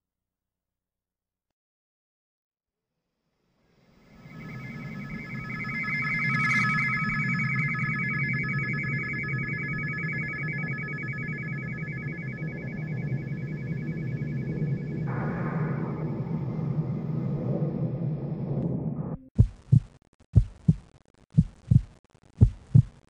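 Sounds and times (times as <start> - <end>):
high fluttering electronic chord: 3.8 - 16.2.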